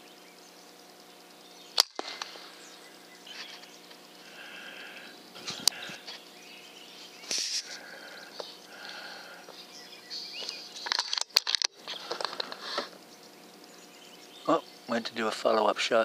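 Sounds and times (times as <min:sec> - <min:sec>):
birds calling faintly: 0:00.0 - 0:16.0
air rifle shot cracks: 0:01.8 - 0:02.5.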